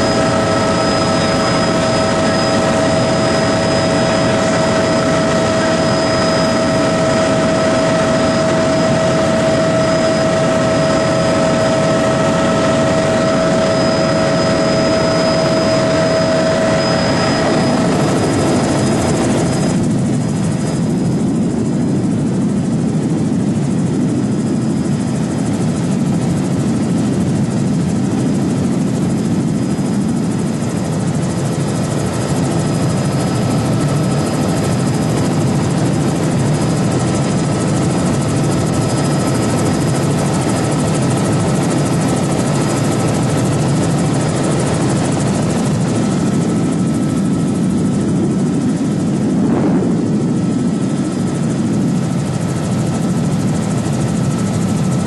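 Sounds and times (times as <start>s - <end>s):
faint whining tones: 0.0s - 27.9s
aircraft propeller droning: 0.0s - 55.0s.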